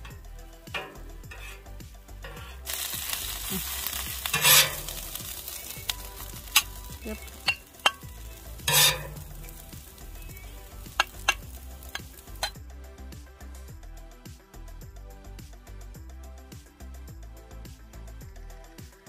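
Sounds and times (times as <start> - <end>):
food sizzling: 0.0 - 12.6
spatula clinking: 0.0 - 12.6
metal spatula scraping griddle: 0.8 - 12.5.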